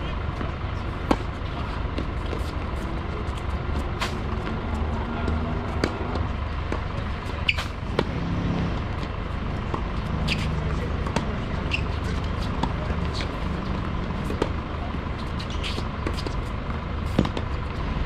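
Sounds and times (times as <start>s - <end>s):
low rumble: 3.1s - 10.2s.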